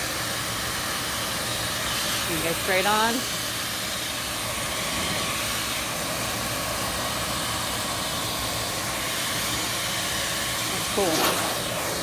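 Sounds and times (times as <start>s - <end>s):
air rushing from hose: 0.0s - 12.0s
vacuum cleaner motor: 0.0s - 12.0s.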